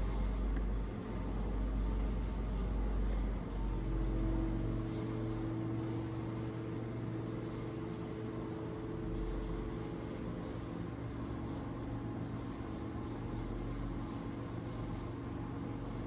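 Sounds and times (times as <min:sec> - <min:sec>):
steady mechanical hum: 0:00.0 - 0:16.0.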